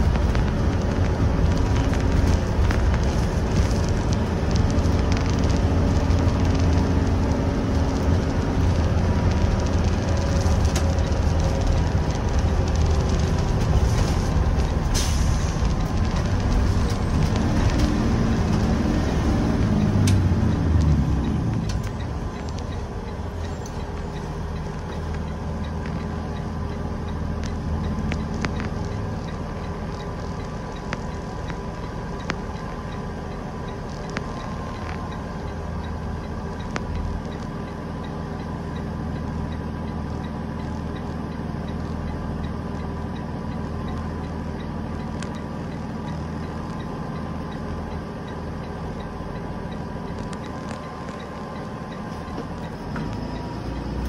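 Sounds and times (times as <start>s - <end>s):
diesel bus engine idling: 0.0s - 54.0s.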